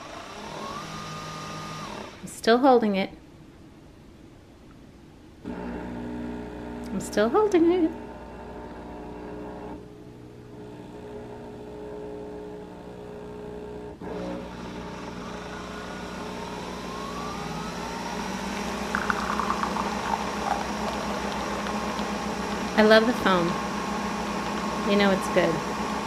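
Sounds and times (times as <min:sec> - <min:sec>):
coffee machine whine: 0:00.0 - 0:02.2, 0:05.5 - 0:09.8, 0:13.9 - 0:26.0
coffee machine motor hum: 0:05.5 - 0:09.8, 0:14.0 - 0:26.0
coffee streaming into cup: 0:18.1 - 0:24.8.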